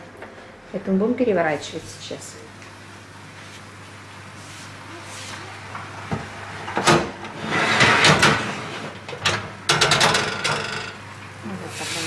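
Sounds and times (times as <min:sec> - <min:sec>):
oven door opening: 0:05.9 - 0:10.9
grill rack sliding on runners: 0:06.0 - 0:09.0.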